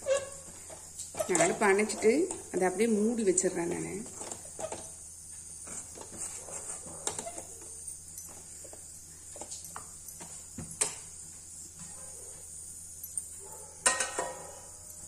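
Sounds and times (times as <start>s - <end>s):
spatula scraping dough in pan: 5.6s - 7.5s.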